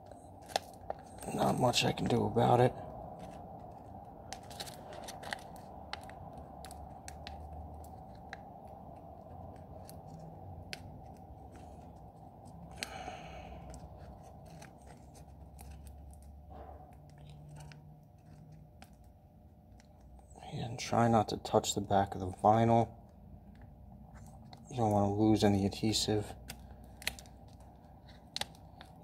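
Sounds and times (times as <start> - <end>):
paper crinkling and crackling: 0.0 - 20.3, 21.8 - 29.0
faint steady hum: 0.0 - 29.0.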